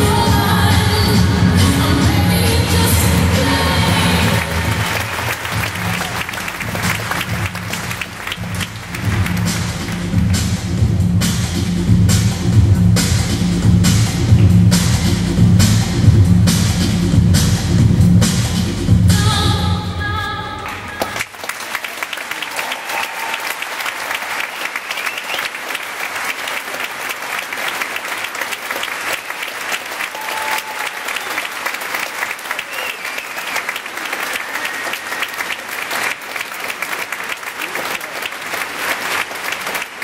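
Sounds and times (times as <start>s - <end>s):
pop music: 0.0s - 20.9s
audience applauding: 2.9s - 10.5s, 20.6s - 40.0s
high calls from audience: 21.9s - 25.5s, 29.9s - 36.1s.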